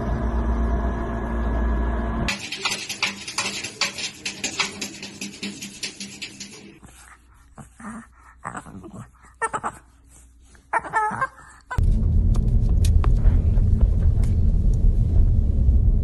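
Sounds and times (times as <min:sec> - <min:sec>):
car cabin road rumble: 0:11.8 - 0:16.0.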